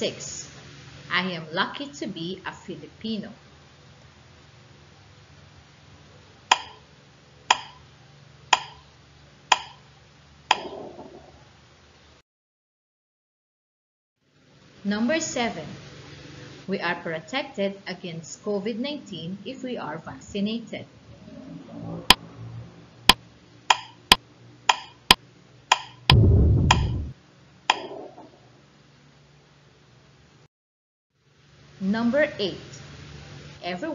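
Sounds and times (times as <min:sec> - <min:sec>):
countdown timer ticks: 0:06.5 - 0:06.8, 0:07.5 - 0:07.8, 0:08.6 - 0:08.8, 0:09.5 - 0:09.8, 0:10.5 - 0:10.7, 0:23.7 - 0:24.0, 0:24.7 - 0:25.0, 0:25.7 - 0:26.0.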